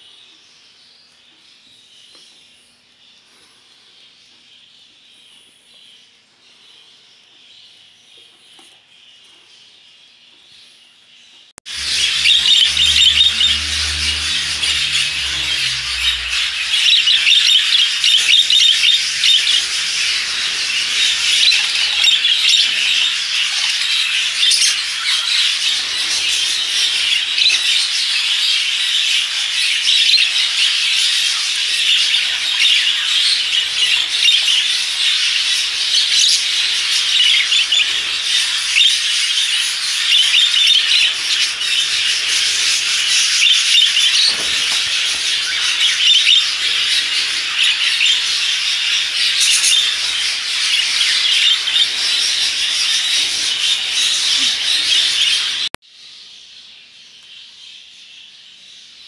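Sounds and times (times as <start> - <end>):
budgerigars chattering: 11.7 - 55.7.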